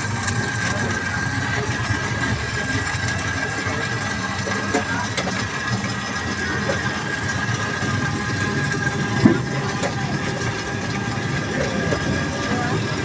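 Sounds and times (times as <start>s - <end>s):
motor hum with high whine: 0.0s - 13.0s.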